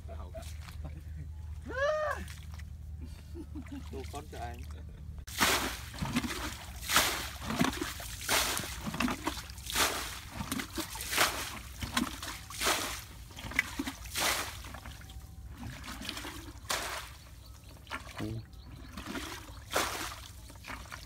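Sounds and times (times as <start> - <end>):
water splashing in metal basin: 5.3 - 21.0.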